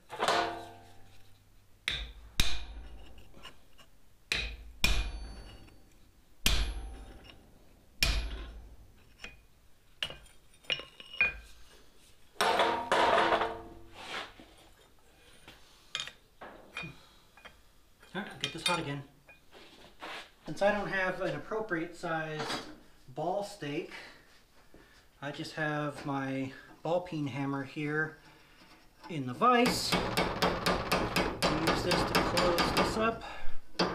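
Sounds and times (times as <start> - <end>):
hammer strikes ringing on metal: 4.3 - 5.7, 6.4 - 7.3, 29.6 - 33.0.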